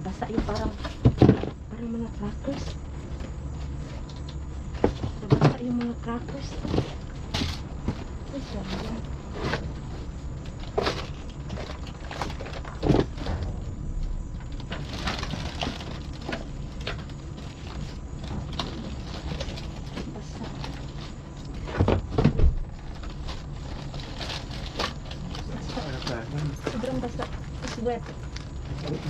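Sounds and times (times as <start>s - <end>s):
low steady hum: 0.0s - 29.0s
loud thump: 12.8s - 15.3s
rustling of packaging: 14.4s - 22.1s, 22.7s - 29.0s.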